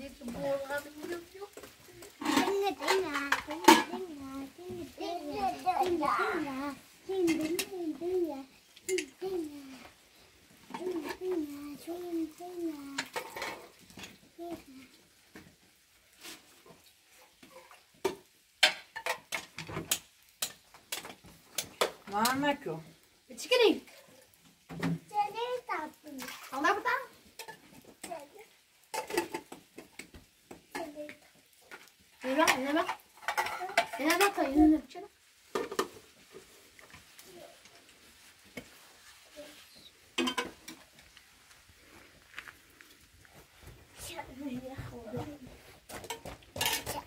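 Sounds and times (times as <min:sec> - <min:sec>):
metal pots clinking and scraping: 0:00.1 - 0:10.0, 0:10.6 - 0:14.4, 0:16.2 - 0:22.7, 0:26.2 - 0:28.2, 0:28.8 - 0:37.9, 0:38.5 - 0:41.1, 0:45.8 - 0:47.0
metal cookware clanking: 0:02.2 - 0:04.0, 0:32.4 - 0:34.5, 0:40.2 - 0:40.8.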